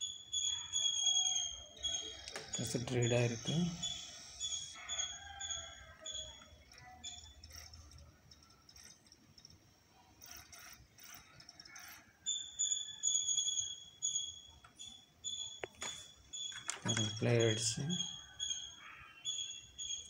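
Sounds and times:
high-pitched drive whine: 0:00.0 - 0:05.5, 0:10.2 - 0:18.2.

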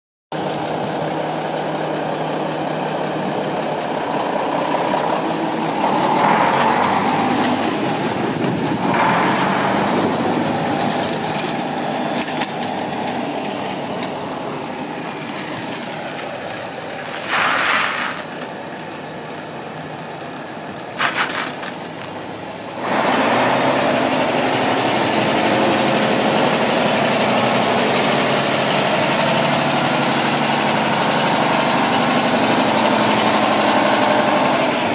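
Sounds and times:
diesel truck engine idling: 0:00.4 - 0:34.9
short bursts of noise: 0:17.0 - 0:18.5.

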